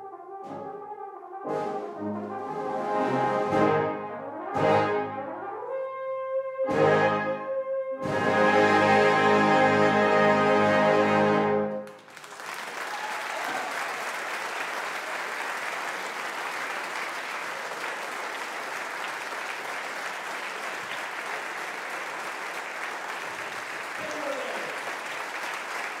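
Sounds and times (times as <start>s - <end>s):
brass band chord: 0.0s - 11.8s
audience applause: 11.8s - 26.0s.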